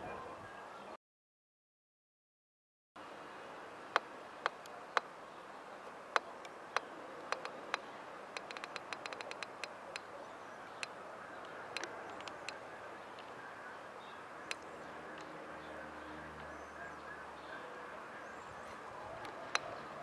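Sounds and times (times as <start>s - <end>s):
steady background hiss: 3.0s - 20.0s
sharp irregular clicks: 5.8s - 10.1s, 10.8s - 13.4s, 14.5s - 15.3s.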